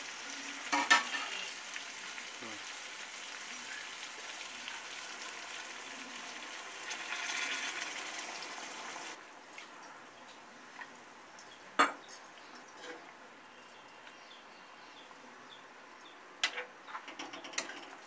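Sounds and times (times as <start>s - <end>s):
water hissing in hot pan: 0.0s - 9.2s.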